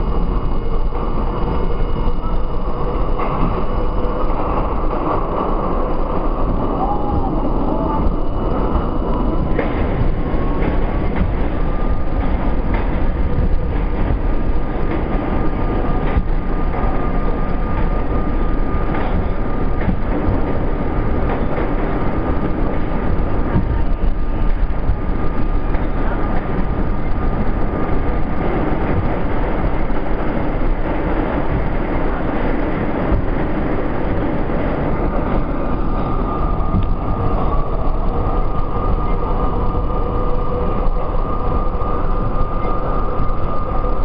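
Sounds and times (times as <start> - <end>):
high train whine: 0.0 - 44.0
subway train rumbling in tunnel: 0.0 - 44.0
sharp track clacks: 2.7 - 44.0.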